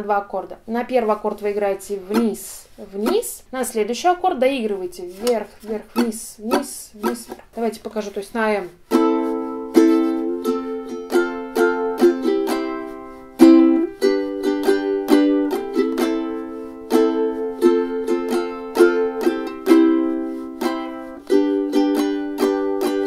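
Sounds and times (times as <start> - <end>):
ukulele strumming chords: 2.0 - 3.4, 5.2 - 7.5, 8.8 - 23.0.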